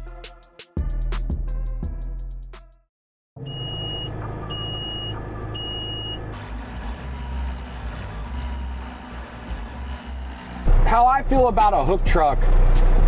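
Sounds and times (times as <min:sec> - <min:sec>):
electronic warning beeps: 0:03.4 - 0:10.7
diesel truck engine running: 0:03.4 - 0:13.0.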